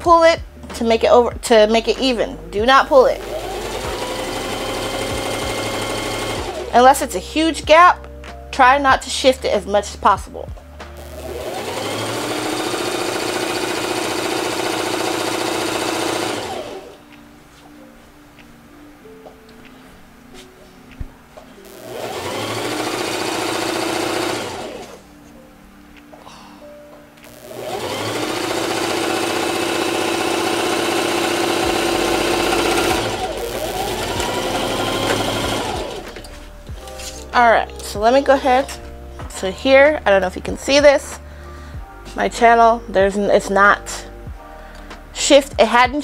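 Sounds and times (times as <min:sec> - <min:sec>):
sewing machine running: 0:03.2 - 0:06.8, 0:11.0 - 0:17.0, 0:21.7 - 0:25.0, 0:27.2 - 0:36.2.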